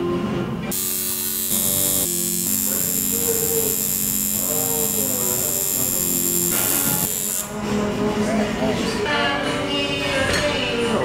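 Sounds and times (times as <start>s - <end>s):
tattoo machine buzzing: 0.7s - 7.6s.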